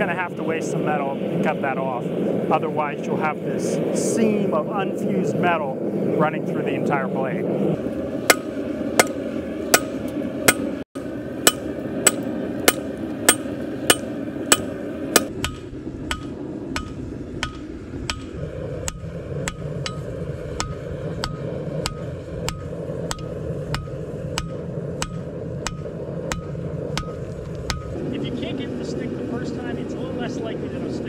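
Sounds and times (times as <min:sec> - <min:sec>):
steady background rush: 0:00.4 - 0:30.9
hammer striking steel on anvil: 0:08.3 - 0:10.8, 0:11.4 - 0:27.9.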